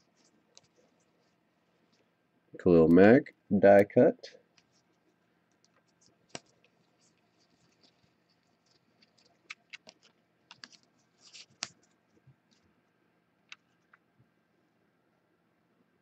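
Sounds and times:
trading cards clicking and tapping: 8.7 - 11.8.

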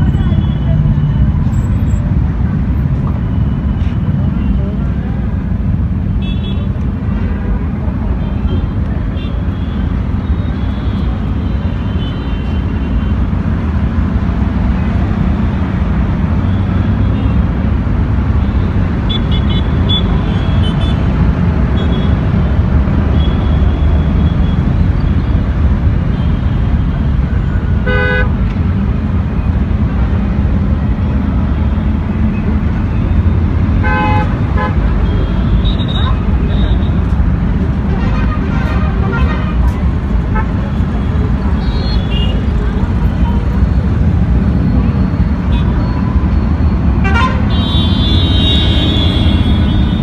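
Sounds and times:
traffic engines rumbling: 0.0 - 50.0
vehicle horns honking: 27.8 - 28.4, 33.8 - 37.1, 37.8 - 42.5, 47.0 - 50.0.

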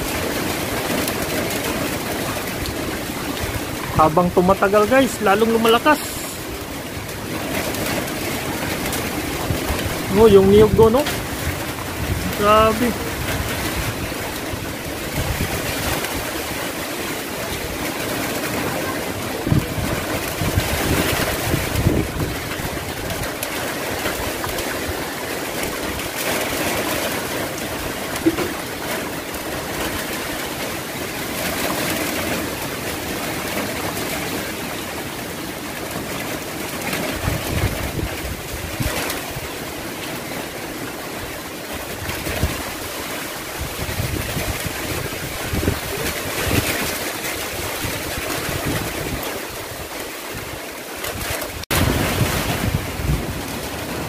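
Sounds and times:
strong gusting wind: 0.0 - 31.7, 37.0 - 40.3, 41.0 - 54.0
wind buffeting microphone: 0.0 - 31.8, 36.9 - 39.9, 40.5 - 54.0.

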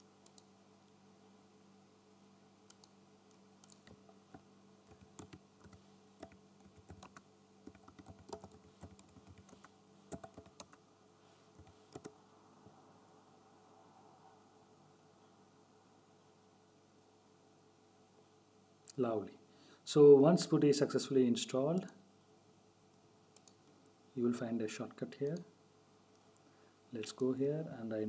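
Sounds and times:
faint typing on computer keyboard: 0.2 - 0.5, 2.7 - 3.0, 3.6 - 10.8, 11.5 - 12.2, 21.7 - 22.0, 23.4 - 23.7.

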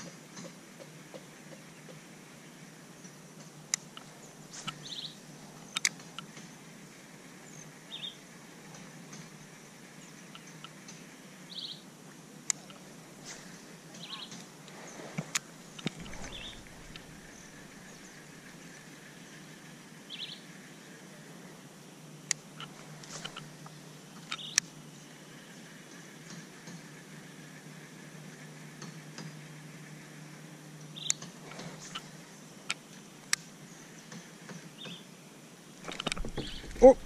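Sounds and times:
low background noise: 0.0 - 37.0
bird trilling: 16.0 - 18.3, 35.8 - 37.0.

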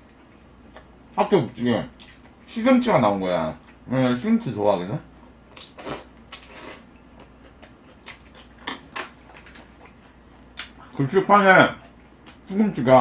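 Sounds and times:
person chewing food: 0.0 - 1.2, 1.9 - 2.5, 5.3 - 11.0, 11.7 - 12.5
mouth smacks and clicks: 5.5 - 6.6, 7.2 - 10.9.

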